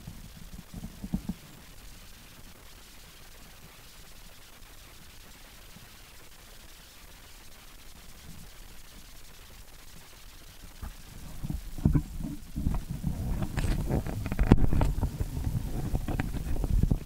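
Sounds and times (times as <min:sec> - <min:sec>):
camera handling rubbing: 0:12.7 - 0:16.7.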